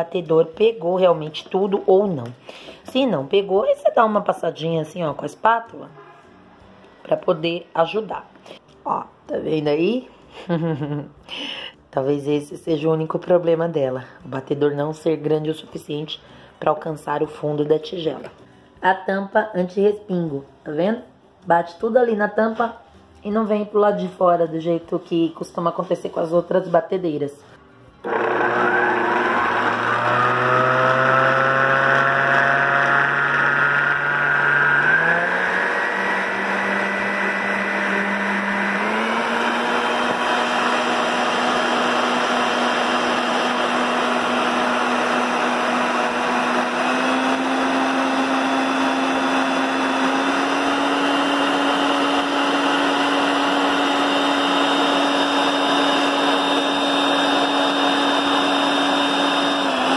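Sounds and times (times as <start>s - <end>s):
stand mixer motor whine: 28.1s - 59.9s.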